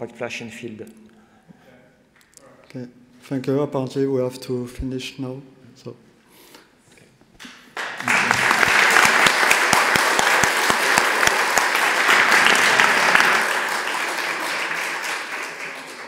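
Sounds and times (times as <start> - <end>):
audience applauding: 7.8 - 16.0.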